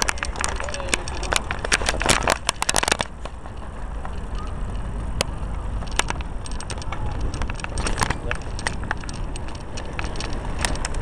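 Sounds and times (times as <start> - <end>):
rattling clicks: 0.0 - 11.0
wind rumbling on microphone: 0.0 - 11.0.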